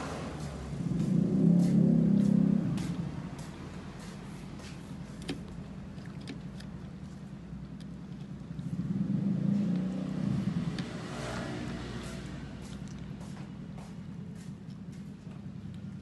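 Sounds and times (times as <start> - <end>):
vehicle engine rumble: 0.0 - 16.0
eating by hand clicks and smacks: 4.6 - 8.8, 11.6 - 16.0.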